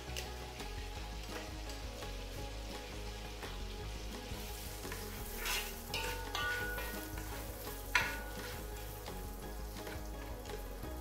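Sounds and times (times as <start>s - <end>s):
onions sizzling in butter: 0.0s - 11.0s
spoon scraping a pot: 5.2s - 8.7s.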